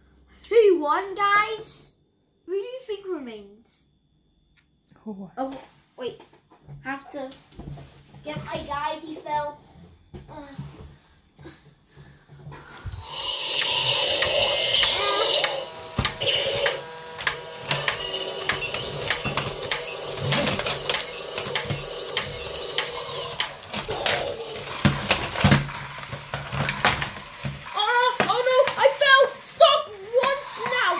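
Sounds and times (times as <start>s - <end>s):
small motor whirring: 12.8s - 30.9s
electronic toy sound effect: 13.0s - 30.9s
plastic gears clicking: 13.2s - 30.9s.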